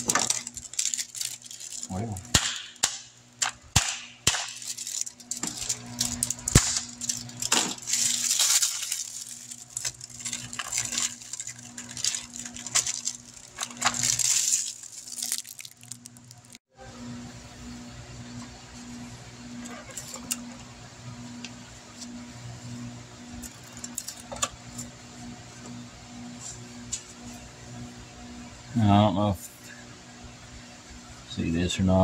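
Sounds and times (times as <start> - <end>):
plastic package crinkling: 0.0 - 2.7, 4.4 - 16.6
low steady hum: 0.0 - 32.0
metal parts clinking: 4.6 - 16.6.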